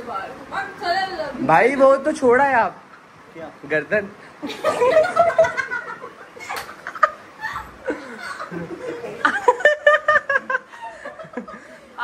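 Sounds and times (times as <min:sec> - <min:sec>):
group of people laughing: 0:04.4 - 0:12.0.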